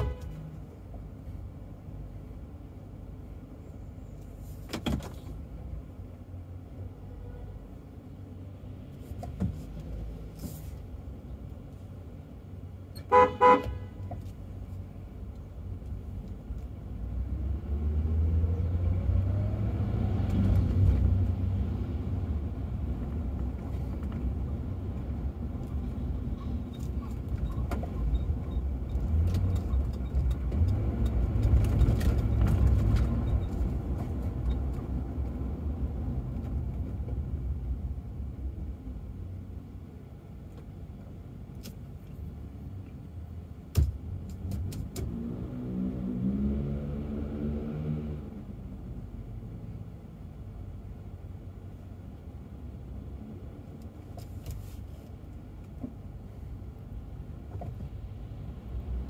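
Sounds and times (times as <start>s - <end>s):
car horn toots: 0.0s - 0.5s, 13.0s - 14.1s
traffic noise: 0.0s - 59.0s
car engine pulling away: 44.5s - 48.6s.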